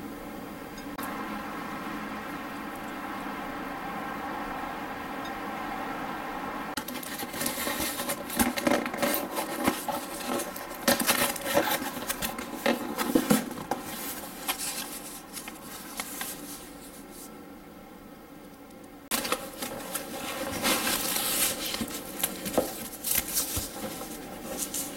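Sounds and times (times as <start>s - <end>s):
steady hum: 0.0s - 24.9s
cardboard box being opened: 6.8s - 16.7s, 19.1s - 24.9s.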